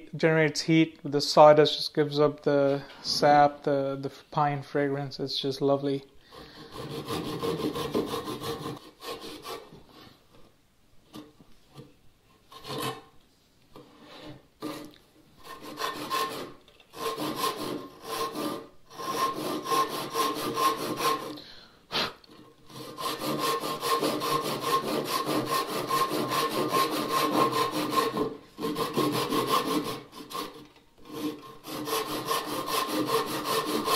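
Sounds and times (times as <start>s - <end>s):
hand saw cutting wood: 6.3s - 10.1s, 12.5s - 13.1s, 13.8s - 21.4s, 22.0s - 33.9s.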